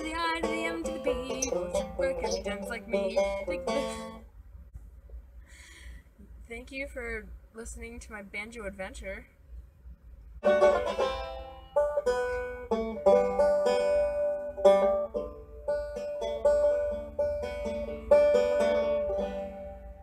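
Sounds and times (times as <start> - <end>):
banjo plucked notes: 0.0 - 4.3, 10.4 - 20.0.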